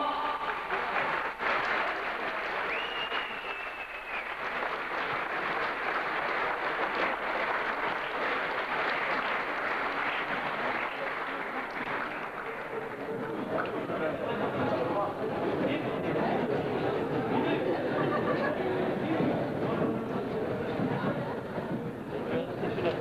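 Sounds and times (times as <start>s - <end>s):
audience applauding: 0.0s - 15.1s, 22.3s - 23.0s.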